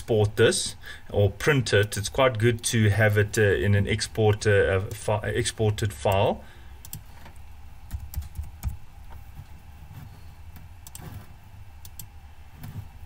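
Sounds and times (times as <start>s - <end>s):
faint low hum: 0.0s - 13.0s
computer keyboard clicks: 6.8s - 7.0s, 7.9s - 8.8s.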